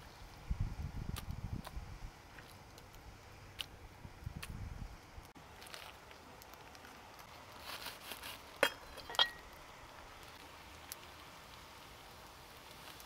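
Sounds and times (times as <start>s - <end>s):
plastic rustling: 5.6s - 9.0s.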